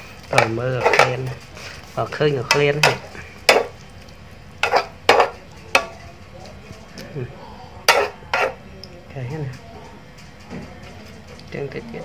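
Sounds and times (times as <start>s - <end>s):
spatula scraping wok: 0.0s - 3.8s, 4.5s - 6.0s, 7.8s - 8.6s
food sizzling: 0.0s - 6.6s, 7.4s - 9.0s.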